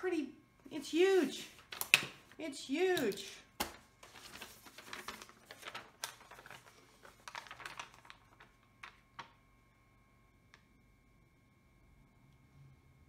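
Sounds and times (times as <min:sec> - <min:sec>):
plastic sheet crackling and rustling: 0:03.6 - 0:09.4.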